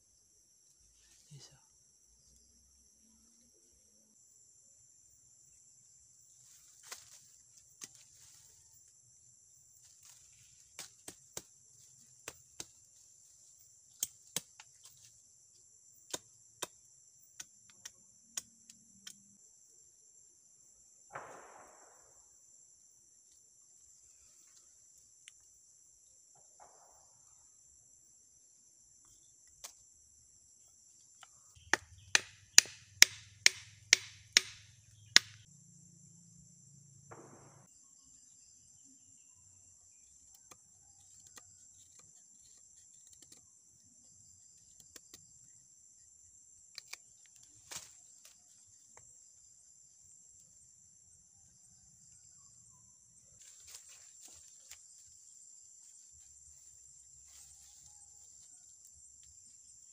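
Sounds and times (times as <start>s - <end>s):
insects trilling: 0.0s - 59.9s
machete chopping wood: 16.0s - 16.8s, 31.6s - 35.5s.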